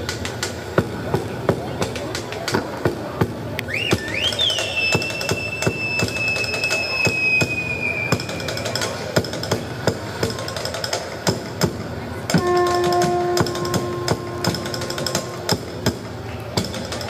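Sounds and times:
held note: 0:12.3 - 0:15.7.

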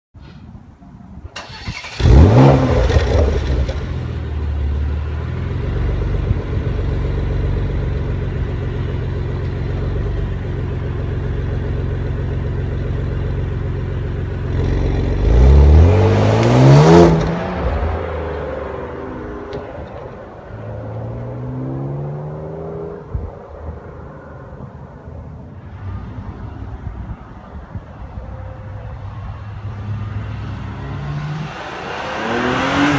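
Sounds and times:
car engine starting and idling: 0:01.2 - 0:28.9
car engine revving: 0:01.4 - 0:06.4, 0:14.4 - 0:20.1, 0:29.7 - 0:32.9
car pulling away: 0:01.4 - 0:23.3, 0:29.5 - 0:32.9.

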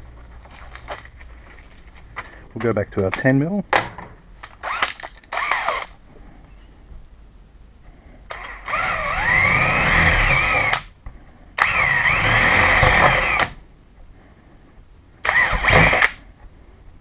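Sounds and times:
power drill whine: 0:04.6 - 0:05.9, 0:08.3 - 0:10.9, 0:11.6 - 0:13.6, 0:15.2 - 0:16.2.

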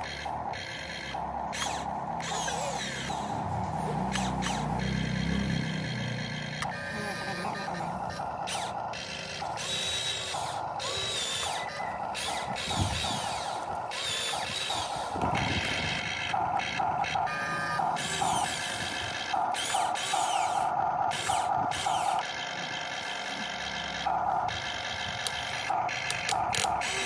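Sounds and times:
electric gear motors whirring: 0:00.0 - 0:27.0.

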